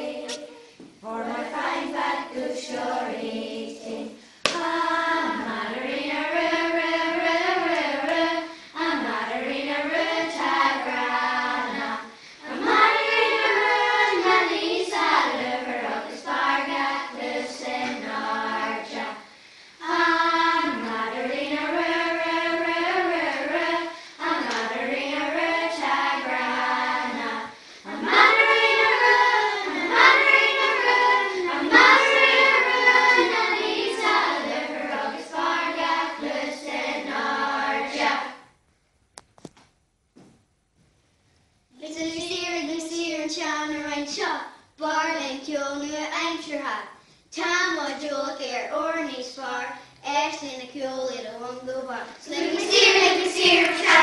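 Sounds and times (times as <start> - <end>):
children's choir singing: 0.0 - 38.5, 52.1 - 54.0.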